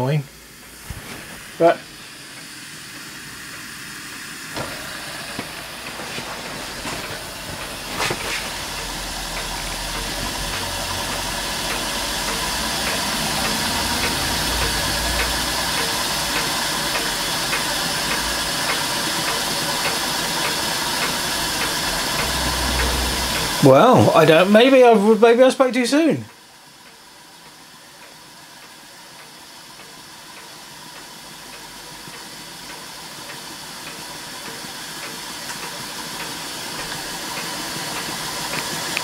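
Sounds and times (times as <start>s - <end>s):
steam hissing from jets: 0.0s - 39.0s
faint regular ticking: 7.0s - 25.0s.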